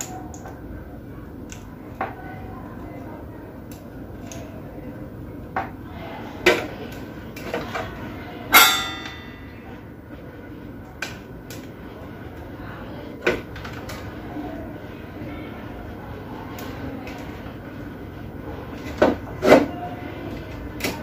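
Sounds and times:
metallic clink with ring: 8.6 - 9.4.

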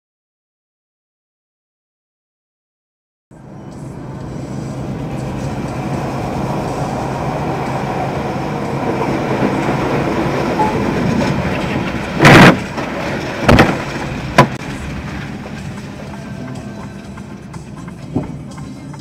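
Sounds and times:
truck road rumble: 3.3 - 19.0
loud truck collision crash: 10.6 - 16.0
debris bangs: 10.6 - 16.1.

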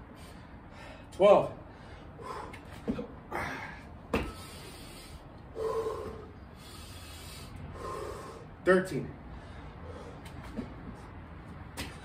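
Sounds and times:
man breathing hard: 0.0 - 8.6, 9.2 - 11.2
voiced huff: 4.5 - 8.5.

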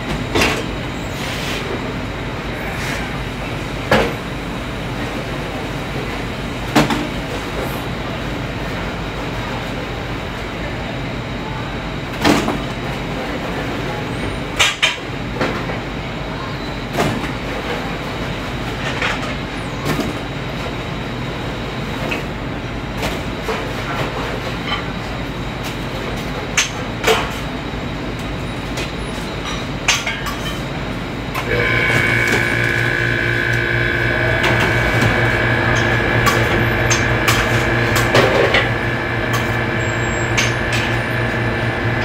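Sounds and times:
exhaust hood rushing: 31.4 - 42.0.

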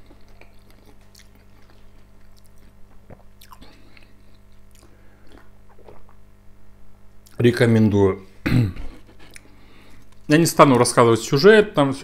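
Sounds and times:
wet chewing: 0.0 - 6.2
low electrical hum: 0.0 - 12.0.

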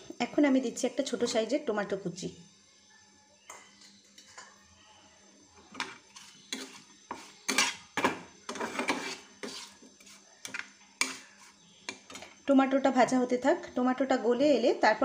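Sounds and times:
spatula scraping frying pan: 5.9 - 10.2, 11.0 - 11.6.

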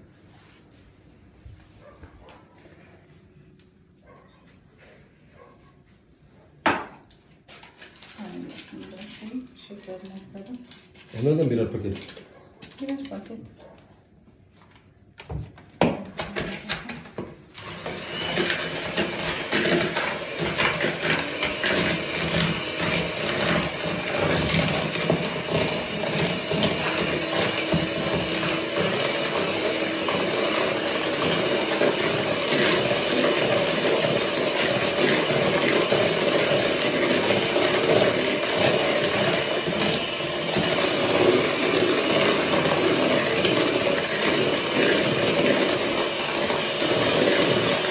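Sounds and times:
electric mixer running: 17.5 - 47.9.

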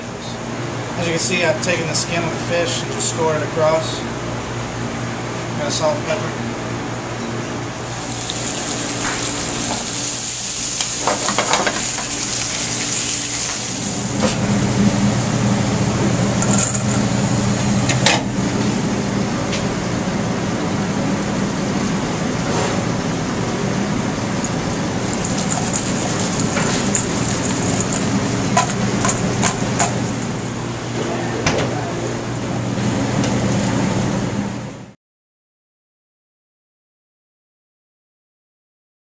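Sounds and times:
gas range hum and rush: 0.0 - 35.0
frying in a pan: 7.8 - 14.1, 24.4 - 30.0.

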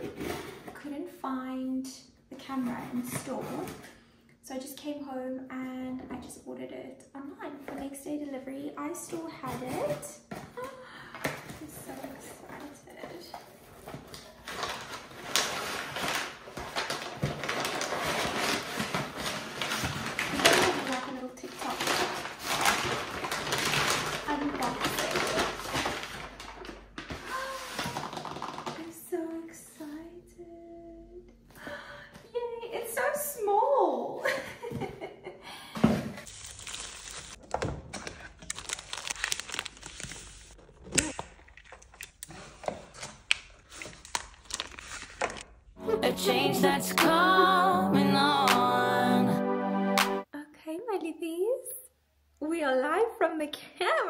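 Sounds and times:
packaging crinkling and tearing: 13.9 - 28.7, 36.2 - 45.6
rustling and clicking handling noises: 36.2 - 45.5.

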